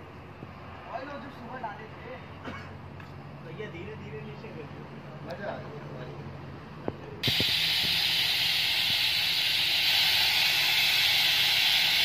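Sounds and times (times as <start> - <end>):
compressed air rushing: 7.2 - 12.0.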